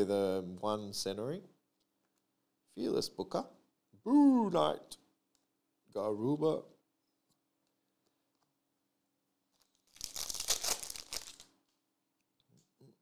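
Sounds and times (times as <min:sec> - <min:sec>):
foil wrapper crinkling and tearing: 0:09.5 - 0:11.6.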